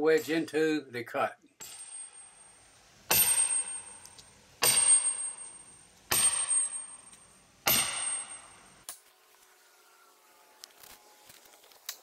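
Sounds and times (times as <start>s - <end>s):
sledgehammer striking steel wedge: 1.6s - 2.5s, 3.1s - 8.9s.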